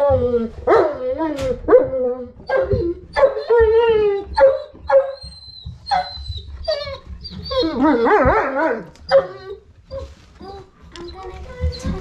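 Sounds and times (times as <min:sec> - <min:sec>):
dog whining: 0:00.0 - 0:12.0.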